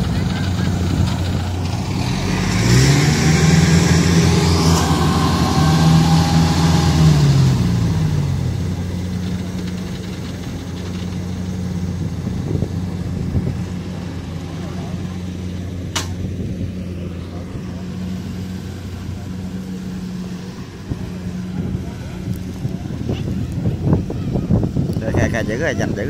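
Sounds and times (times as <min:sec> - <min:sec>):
harvester engine revving: 0:00.0 - 0:26.0.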